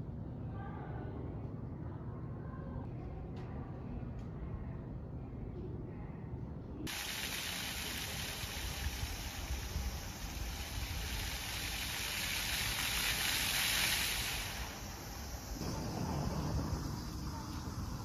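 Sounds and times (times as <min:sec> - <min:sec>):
fountain water spraying: 0:06.9 - 0:18.0.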